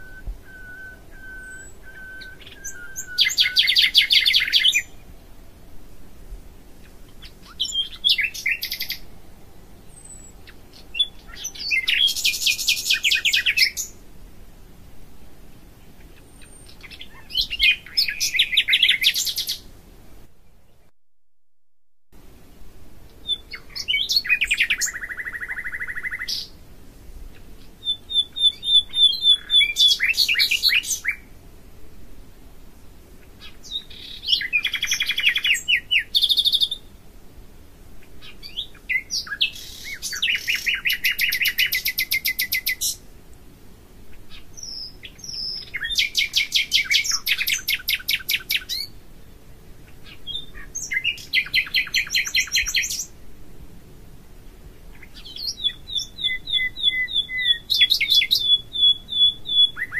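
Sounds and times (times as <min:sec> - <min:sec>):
songbird singing trills: 0:00.0 - 0:05.2, 0:06.8 - 0:14.0, 0:15.8 - 0:19.7, 0:23.1 - 0:26.6, 0:27.3 - 0:31.3, 0:33.2 - 0:37.0, 0:38.0 - 0:43.0, 0:44.1 - 0:49.0, 0:49.8 - 0:53.2, 0:54.8 - 0:59.9.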